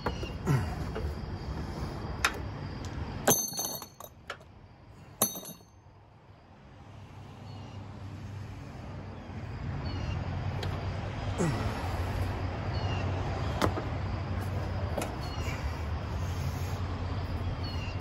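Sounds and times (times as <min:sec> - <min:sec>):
metal tools clinking: 0:03.2 - 0:04.4, 0:05.2 - 0:05.8.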